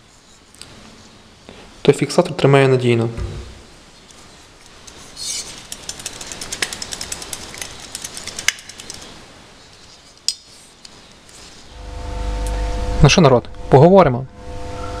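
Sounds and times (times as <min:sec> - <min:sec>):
wiper clicks and rattles: 0:04.8 - 0:09.1.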